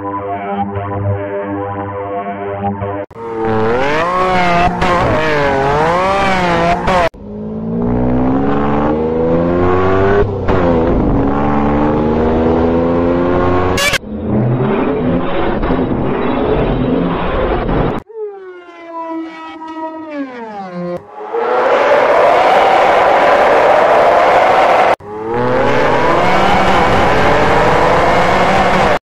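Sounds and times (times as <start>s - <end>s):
altered car engine revving: 3.1s - 17.2s, 20.8s - 29.0s.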